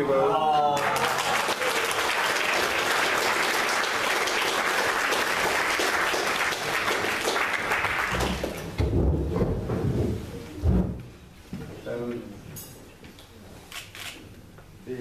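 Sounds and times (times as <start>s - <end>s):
people clapping: 0.6s - 8.8s.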